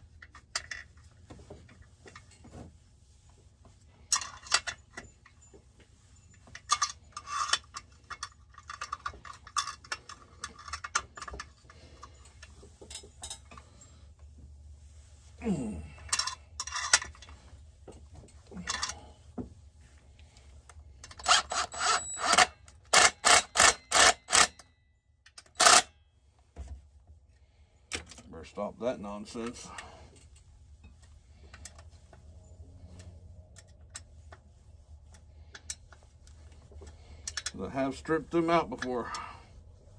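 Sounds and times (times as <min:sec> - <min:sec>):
tools and parts clicking: 0:00.0 - 0:02.4, 0:04.0 - 0:13.9, 0:16.0 - 0:19.1, 0:20.7 - 0:26.0, 0:27.9 - 0:28.3, 0:32.9 - 0:34.5, 0:35.1 - 0:39.3
low steady hum: 0:00.0 - 0:39.9.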